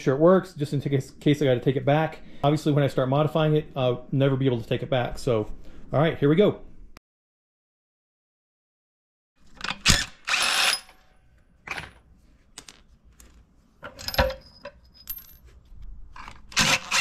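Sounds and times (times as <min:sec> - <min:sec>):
metallic clinks and knocks: 0:12.6 - 0:15.7.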